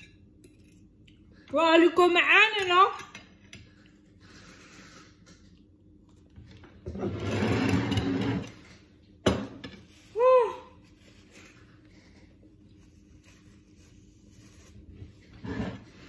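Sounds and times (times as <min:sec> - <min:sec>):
plate scraping across wood: 0:15.3 - 0:16.0.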